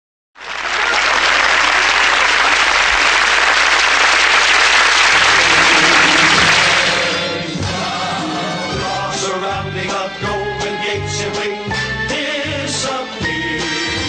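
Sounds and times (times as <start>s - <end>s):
studio audience applauding: 0.4s - 7.4s.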